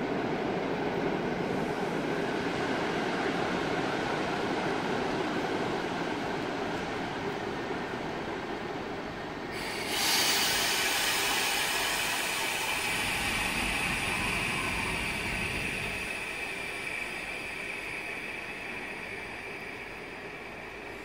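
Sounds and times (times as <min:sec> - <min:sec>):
train rolling in: 0:00.0 - 0:21.0
brake squeal and hiss: 0:09.6 - 0:21.0.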